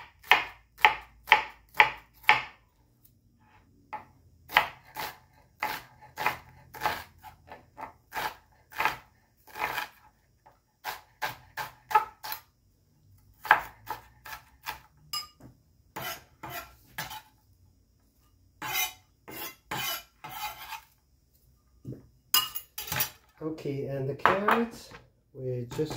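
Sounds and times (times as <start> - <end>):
knife chopping on plastic board: 0.0 - 2.6, 3.9 - 10.0, 13.4 - 17.2
knife scraping onion together: 4.5 - 10.2, 10.8 - 12.5, 13.4 - 14.9, 15.9 - 17.4, 18.6 - 21.0.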